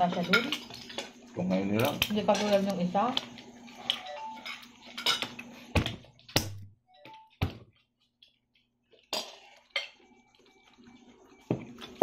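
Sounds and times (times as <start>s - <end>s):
tableware clinking on table: 0.0s - 1.2s, 3.8s - 6.0s.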